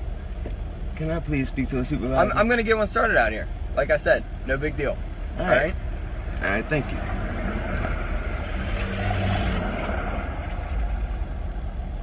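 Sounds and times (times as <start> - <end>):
road traffic rumbling: 0.0 - 12.0
vehicle passing: 5.7 - 12.0.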